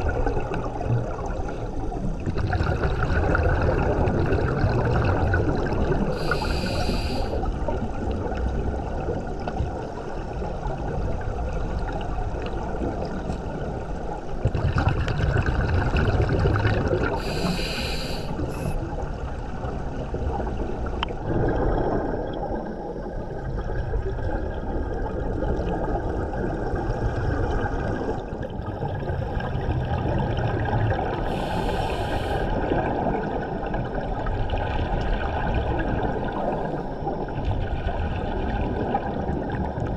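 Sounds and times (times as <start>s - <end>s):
underwater bubbling and gurgling: 0.0s - 39.9s
short high regulator hisses: 6.2s - 7.4s, 17.2s - 18.8s, 31.3s - 32.5s.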